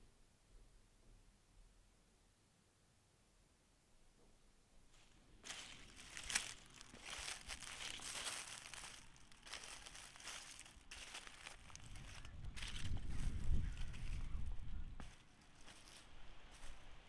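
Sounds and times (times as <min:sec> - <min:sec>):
dry leaves crunching: 0:04.9 - 0:17.0.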